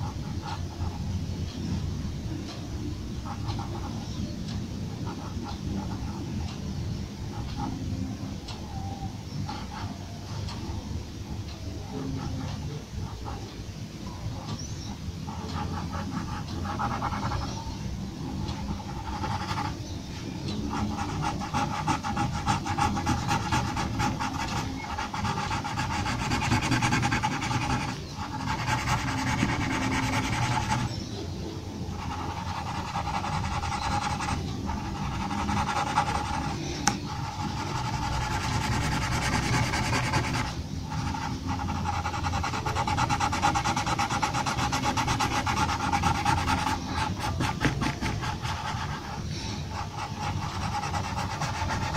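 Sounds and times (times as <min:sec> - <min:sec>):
pencil scratching on paper: 0:00.0 - 0:01.1, 0:03.2 - 0:04.1, 0:05.0 - 0:06.6, 0:11.8 - 0:13.4, 0:15.2 - 0:19.8, 0:20.5 - 0:31.1, 0:31.9 - 0:51.9.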